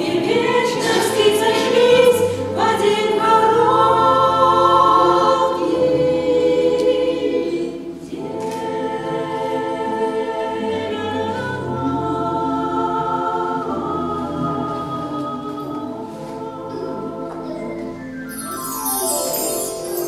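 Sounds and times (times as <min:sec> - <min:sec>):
women singing in harmony: 0:00.0 - 0:20.0
electronic keyboard chords: 0:17.0 - 0:20.0.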